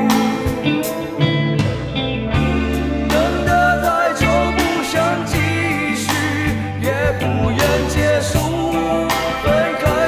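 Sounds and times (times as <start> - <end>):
band accompaniment: 0.0 - 10.0
man singing: 3.0 - 10.0.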